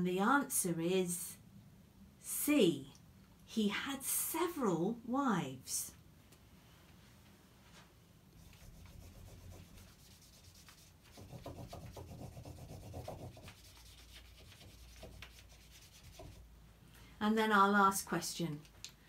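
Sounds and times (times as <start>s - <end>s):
highlighter rubbing on paper: 8.4s - 16.4s.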